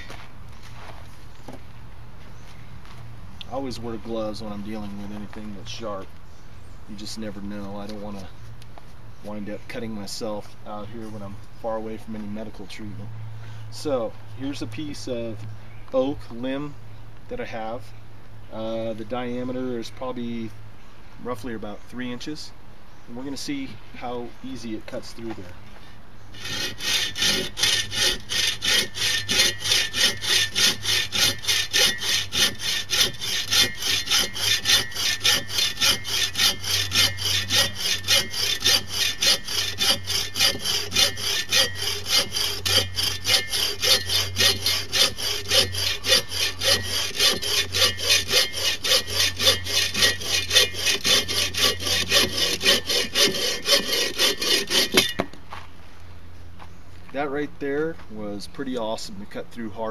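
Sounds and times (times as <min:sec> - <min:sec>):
folding saw cutting wood: 0:26.3 - 0:55.4.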